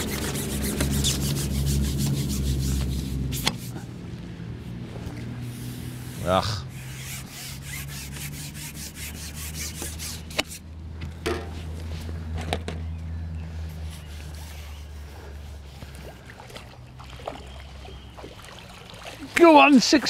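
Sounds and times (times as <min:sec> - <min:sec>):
fishing pole rubbing and clicking: 0:00.0 - 0:03.8, 0:05.2 - 0:10.6, 0:13.8 - 0:15.4
low steady rumble: 0:00.0 - 0:19.3
faint water splashing: 0:14.1 - 0:20.0.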